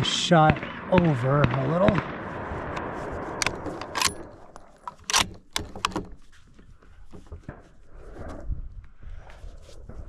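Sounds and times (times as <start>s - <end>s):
rifle bolt clicks and clacks: 3.4s - 6.2s.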